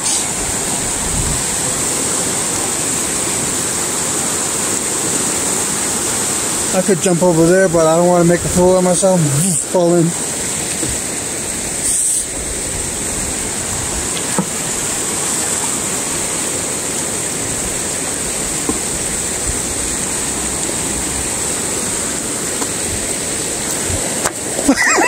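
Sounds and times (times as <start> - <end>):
river rushing: 0.0 - 25.0
man speaking loudly: 6.7 - 10.2.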